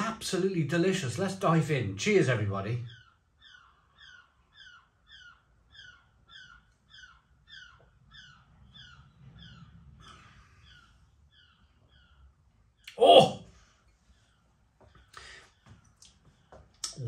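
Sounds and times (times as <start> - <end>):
high falling animal call: 12.9 - 13.4.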